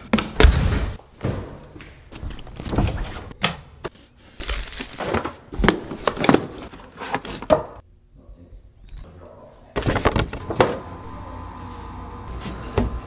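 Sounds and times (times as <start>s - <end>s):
cardboard boxes being unpacked: 4.2s - 7.5s.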